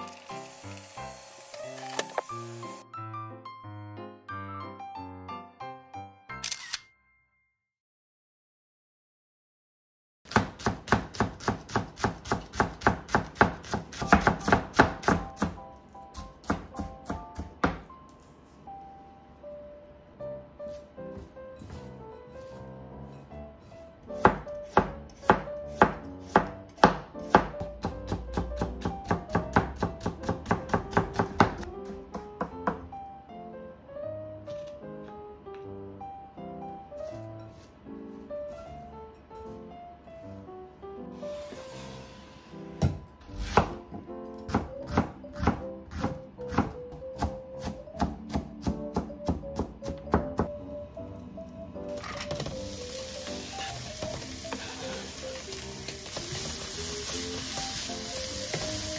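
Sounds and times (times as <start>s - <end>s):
knife chopping on cutting board: 10.3s - 17.8s, 24.2s - 32.8s, 42.8s - 50.5s
soft background music: 11.0s - 58.9s.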